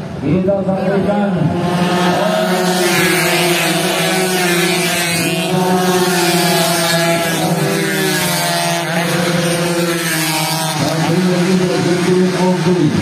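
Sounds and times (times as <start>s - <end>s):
racing motorcycles revving: 0.0s - 13.0s.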